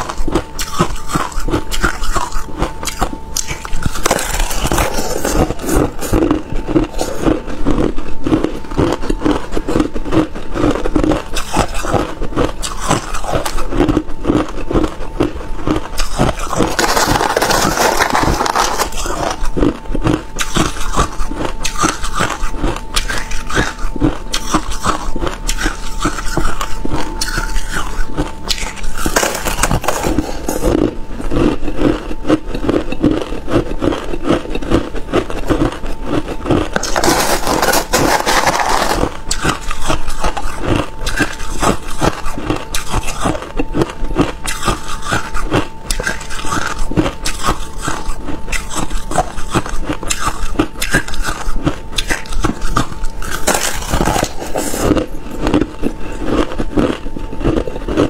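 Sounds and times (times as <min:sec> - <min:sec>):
metal spoon scraping ice: 0:00.0 - 0:06.3, 0:16.0 - 0:19.6, 0:35.3 - 0:43.6, 0:44.2 - 0:55.6
crushed ice crunching: 0:00.0 - 0:15.0, 0:15.7 - 0:22.3, 0:28.5 - 0:32.1, 0:35.4 - 0:43.4, 0:52.0 - 0:58.0.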